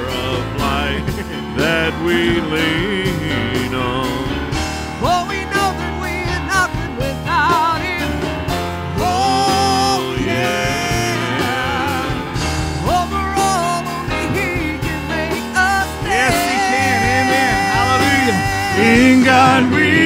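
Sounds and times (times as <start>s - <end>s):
worship band playing: 0.0s - 20.0s
singers with vibrato: 8.9s - 20.0s.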